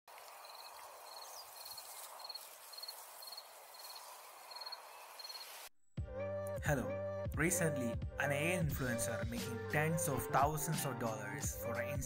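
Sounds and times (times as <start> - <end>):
faint outdoor hiss: 0.1 - 5.7
insect chirping: 0.2 - 5.7.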